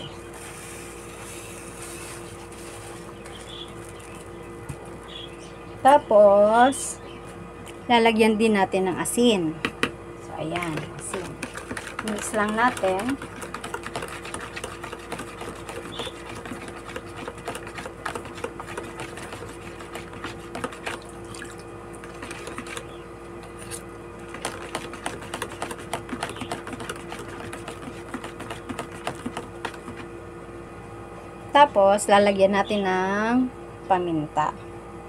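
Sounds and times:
steady low hum: 0:00.0 - 0:35.0
liquid sloshing: 0:10.6 - 0:30.0.

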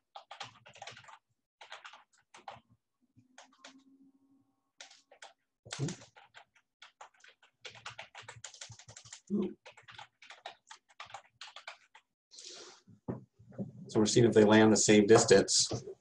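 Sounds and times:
typing on keyboard: 0:00.0 - 0:02.6, 0:03.4 - 0:03.8, 0:04.8 - 0:12.1.

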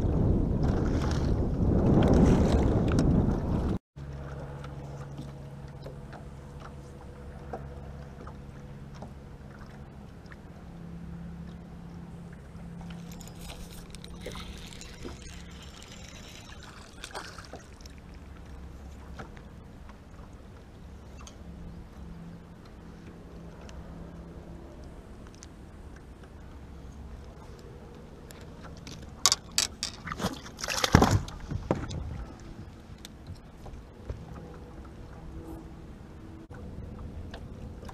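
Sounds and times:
electric trolling motor humming: 0:04.0 - 0:30.0
fishing reel clicks and rustles: 0:12.2 - 0:20.0, 0:27.2 - 0:31.4.

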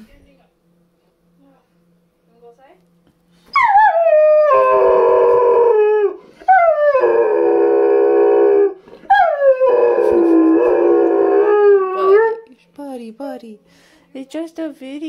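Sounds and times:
dog howling: 0:03.5 - 0:12.4.

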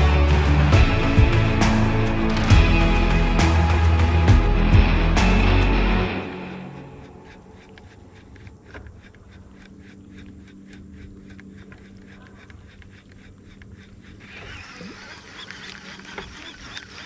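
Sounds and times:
quick irregular clicks: 0:06.2 - 0:17.0.

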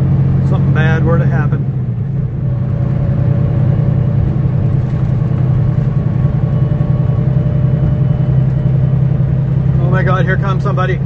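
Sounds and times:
road noise: 0:00.0 - 0:11.0
truck diesel engine droning: 0:00.0 - 0:11.0.

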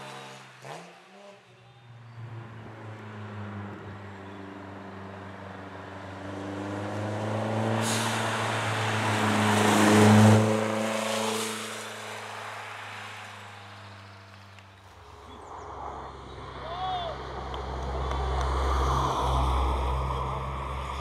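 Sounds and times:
rally car engine passing by: 0:02.1 - 0:14.4.

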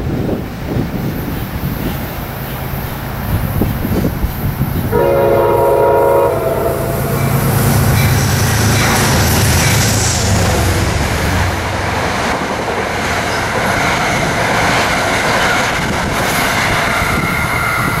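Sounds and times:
diesel locomotive rumble: 0:00.0 - 0:18.0
train horn blast: 0:04.9 - 0:09.0.

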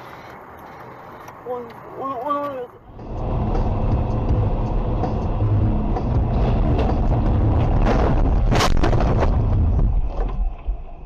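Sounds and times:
vehicle engine and road rumble: 0:00.0 - 0:11.0
sharp crack: 0:06.6 - 0:10.4.

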